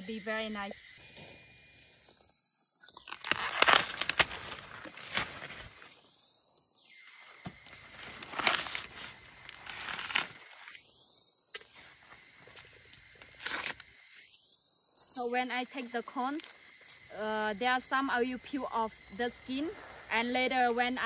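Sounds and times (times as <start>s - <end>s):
corn ear snapping off stalk: 3.0s - 5.7s
corn husk tearing: 3.0s - 5.9s, 7.7s - 10.8s, 13.2s - 13.8s.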